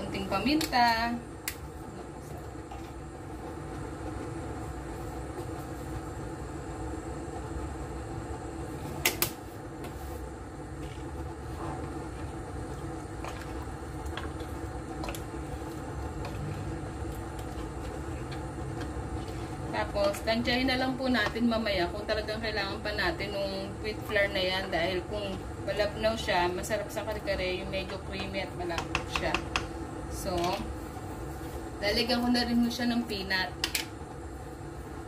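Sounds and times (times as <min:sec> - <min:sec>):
fan-like hum: 0:00.0 - 0:35.0.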